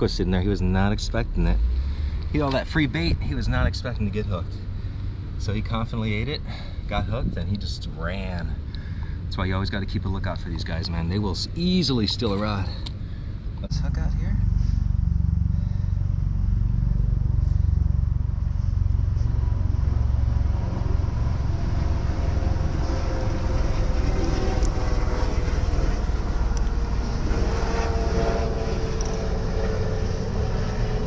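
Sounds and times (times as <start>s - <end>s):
helicopter rumble: 0.0s - 31.0s
helicopter whine: 10.1s - 31.0s.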